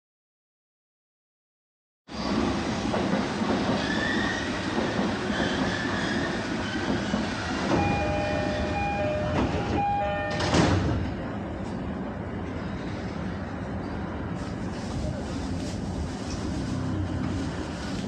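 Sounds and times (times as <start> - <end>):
train doors shutting: 2.1 - 11.8
train standing at platform: 2.1 - 18.0
two-note door chime: 7.8 - 10.6.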